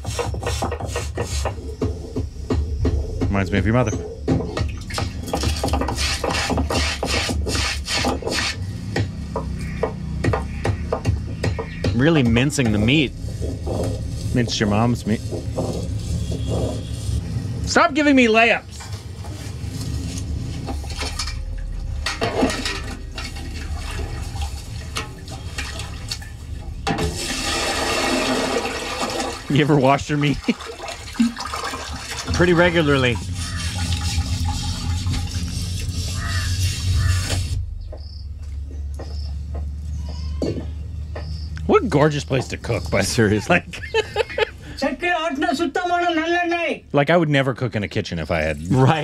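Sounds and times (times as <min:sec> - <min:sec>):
hand grinding on grinding stone: 0:00.0 - 0:01.7, 0:05.3 - 0:08.6, 0:32.4 - 0:37.6
water splashing in metal pot: 0:04.4 - 0:08.3, 0:20.6 - 0:37.2
water pouring into basin: 0:20.8 - 0:36.4.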